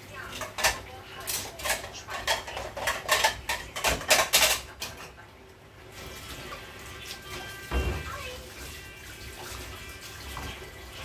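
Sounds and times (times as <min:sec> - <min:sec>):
cutlery and dishes clattering: 0:00.1 - 0:05.2.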